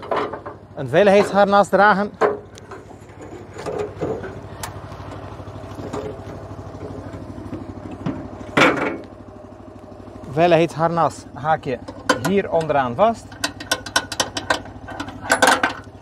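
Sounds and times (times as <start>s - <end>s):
knocks and clanks in metal basket: 0.0s - 4.5s, 5.8s - 9.1s, 11.8s - 16.0s
petrol engine idling: 0.0s - 16.0s
loud clatter: 13.2s - 15.9s.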